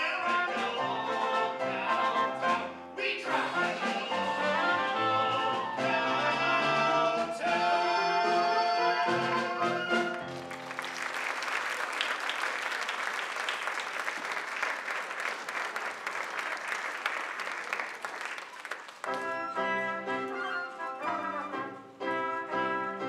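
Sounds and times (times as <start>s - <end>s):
orchestra playing: 0.0s - 11.1s, 19.0s - 23.0s
audience applauding: 9.8s - 21.8s.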